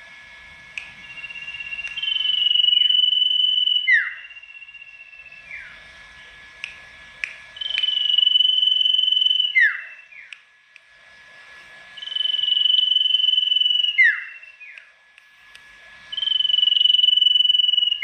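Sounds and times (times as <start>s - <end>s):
songbird whistling: 0.8s - 5.8s, 7.6s - 10.4s, 12.0s - 14.9s, 16.1s - 18.0s.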